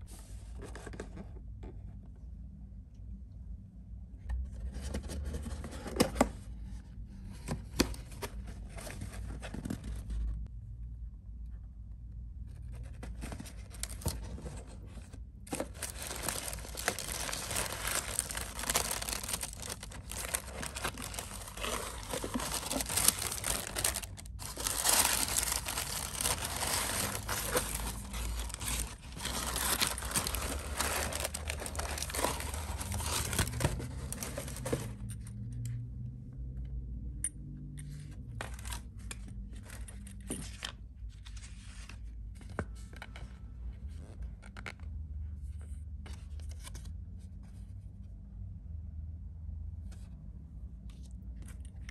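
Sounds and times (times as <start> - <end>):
tissue paper rustling: 15.5 - 34.9.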